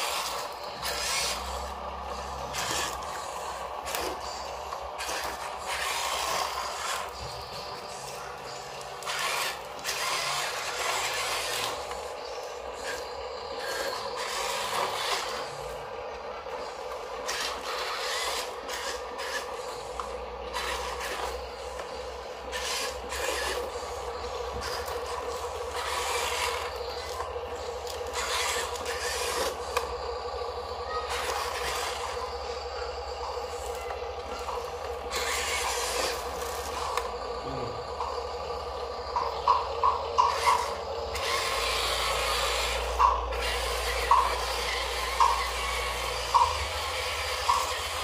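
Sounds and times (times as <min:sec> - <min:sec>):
small electric motors whirring: 0:00.0 - 0:48.0.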